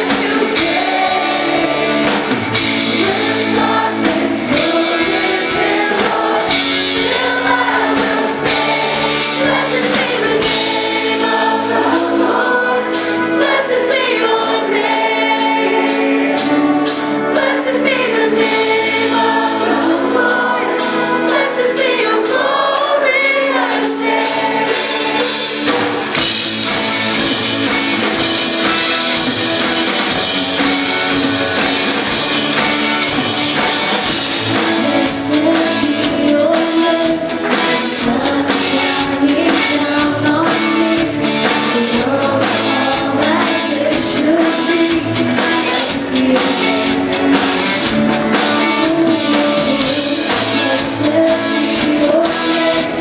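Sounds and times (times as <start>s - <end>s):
person singing: 0.0s - 25.8s, 34.4s - 47.4s, 48.0s - 53.0s
drumming: 0.0s - 53.0s
live band playing: 0.0s - 53.0s.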